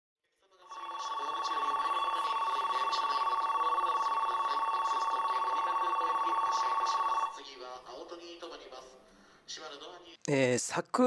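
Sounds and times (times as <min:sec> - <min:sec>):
electronic ringing: 0:00.7 - 0:07.4.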